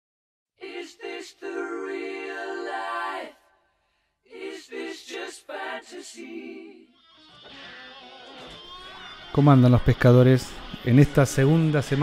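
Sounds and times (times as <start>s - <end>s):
a cappella singing jingle: 0.6s - 8.6s.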